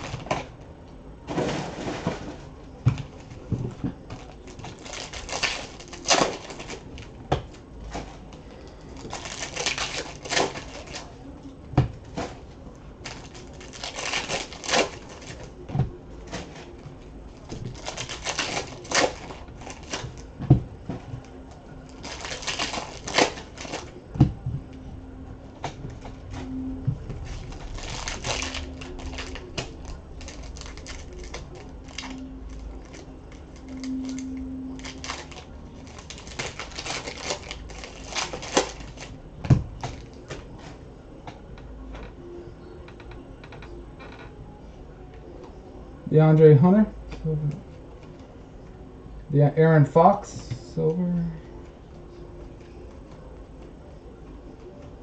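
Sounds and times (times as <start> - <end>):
foil wrappers crinkling and tearing: 4.2 - 7.1, 8.9 - 11.2, 13.0 - 15.5, 17.5 - 20.3, 21.9 - 24.0, 27.2 - 39.2.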